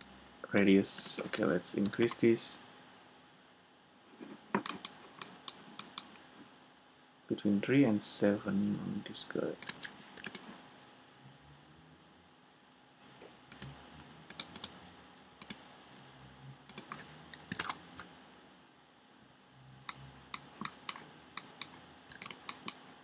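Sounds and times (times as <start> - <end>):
keyboard key clicks: 20.6 - 22.8.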